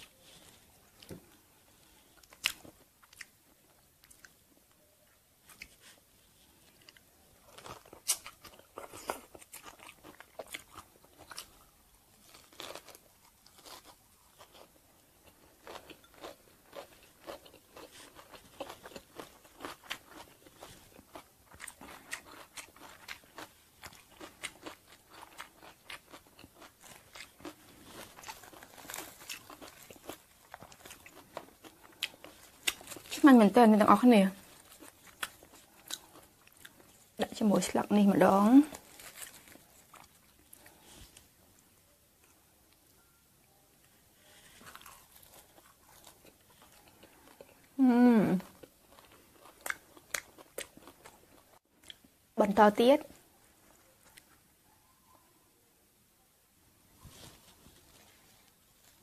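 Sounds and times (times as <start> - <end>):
crunching bites and chewing: 2.1 - 3.4, 6.7 - 33.2, 34.4 - 37.0, 38.7 - 40.9, 44.6 - 47.7, 48.5 - 52.1.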